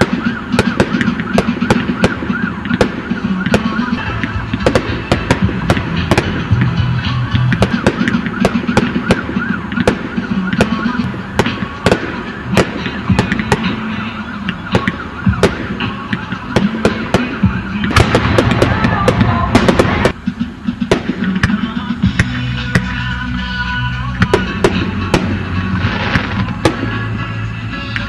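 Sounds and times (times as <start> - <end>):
warbling whistling tone: 0.0 - 19.8
fireworks bangs and crackles: 0.0 - 23.1, 24.1 - 28.0.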